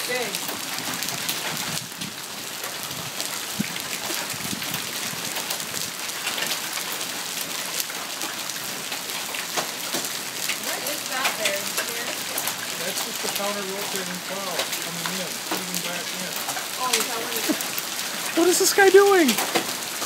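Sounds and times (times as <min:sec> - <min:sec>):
sharp ticks of raindrops: 0:00.0 - 0:20.0
steady rain falling: 0:00.0 - 0:20.0.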